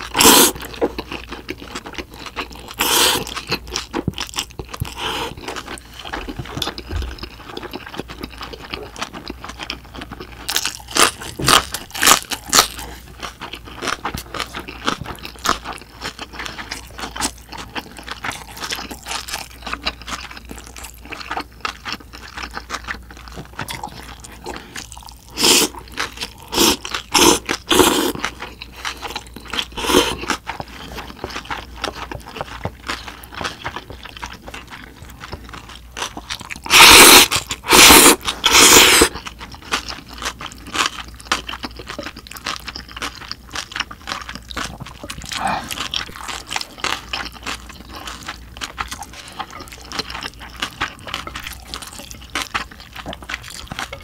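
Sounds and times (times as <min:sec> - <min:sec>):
chewing and crunching: 0:00.0 - 0:54.0
loud noodle slurps: 0:00.2 - 0:00.6, 0:02.8 - 0:03.3, 0:25.4 - 0:25.7, 0:26.5 - 0:28.1, 0:36.7 - 0:39.1.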